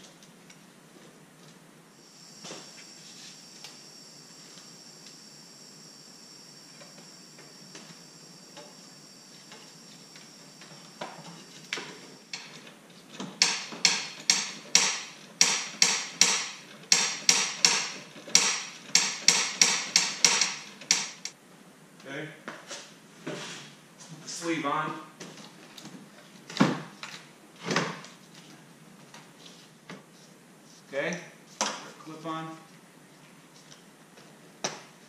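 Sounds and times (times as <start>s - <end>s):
faint high whine: 1.8s - 12.5s
sharp metallic knocks: 13.4s - 21.3s.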